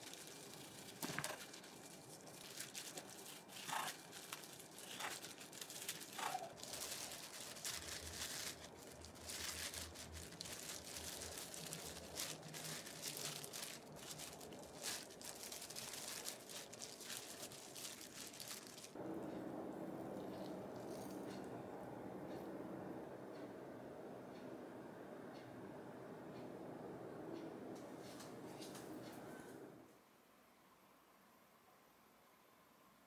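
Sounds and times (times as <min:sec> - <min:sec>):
plastic gloves crinkling: 0:00.0 - 0:19.0.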